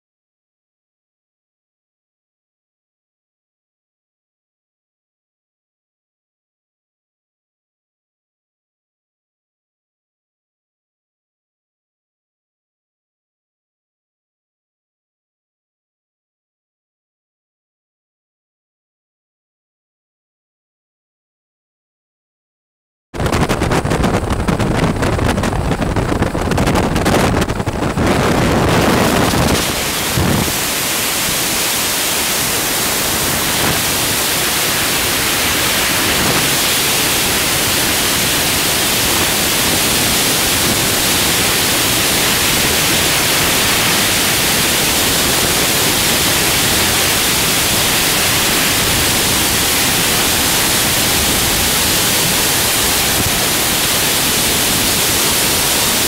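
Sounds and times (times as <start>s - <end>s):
freefall wind on microphone: 23.2s - 56.0s.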